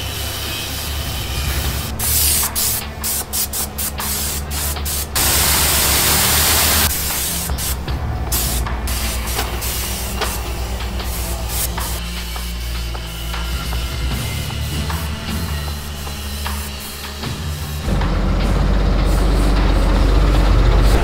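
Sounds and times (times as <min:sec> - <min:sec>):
spray hiss bursts: 0:00.1 - 0:17.8
pulsing motor hum: 0:05.2 - 0:21.0.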